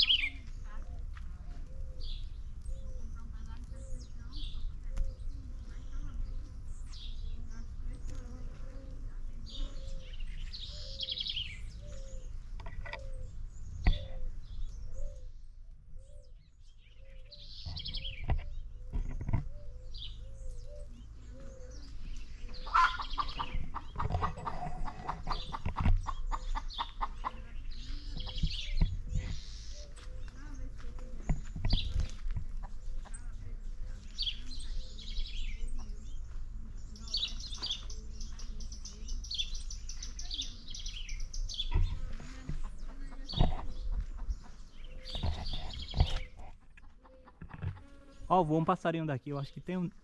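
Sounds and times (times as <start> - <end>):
high bird chirps: 0.0 - 0.8, 9.5 - 24.6
rapid chattering bird calls: 1.7 - 15.3, 16.0 - 50.0.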